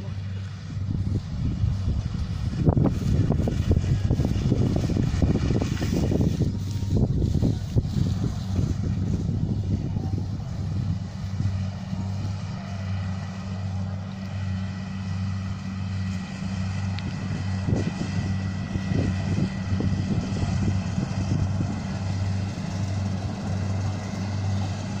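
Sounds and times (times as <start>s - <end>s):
diesel engine low drone: 0.0s - 25.0s.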